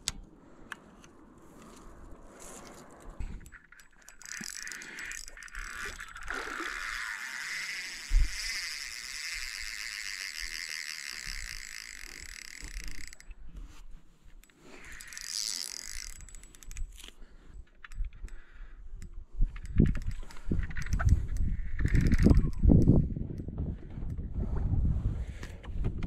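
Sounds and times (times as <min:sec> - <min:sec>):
reel clicks: 0:00.0 - 0:24.3
fishing reel whirring: 0:02.7 - 0:13.4, 0:14.4 - 0:24.2.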